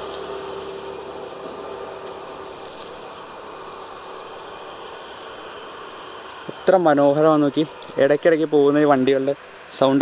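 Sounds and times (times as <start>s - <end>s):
cicadas droning: 0.0s - 10.0s
small birds chirping: 2.5s - 10.0s.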